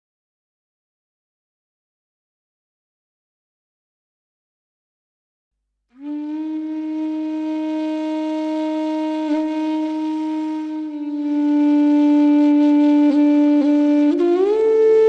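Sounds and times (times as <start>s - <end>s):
woodwind holding long notes: 6.0s - 15.0s.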